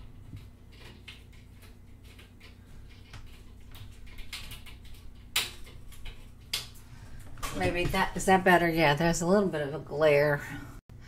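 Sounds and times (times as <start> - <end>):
blinds clicking and rattling: 0.0 - 8.5.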